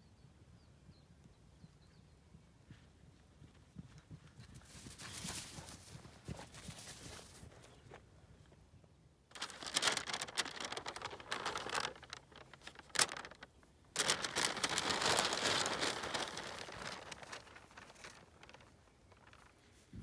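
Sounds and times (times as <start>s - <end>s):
sharp paper crackle: 9.3s - 19.8s
paper map crinkling and rustling: 9.3s - 20.0s.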